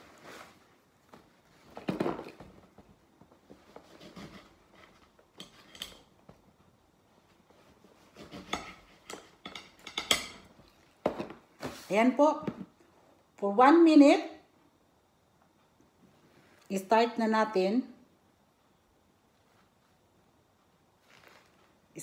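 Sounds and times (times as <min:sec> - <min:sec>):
plate knocking and clinking: 0:08.5 - 0:10.5.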